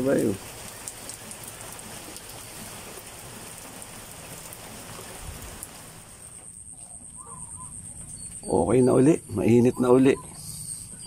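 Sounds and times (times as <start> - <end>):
rain on wet ground and foliage: 0.0 - 6.5.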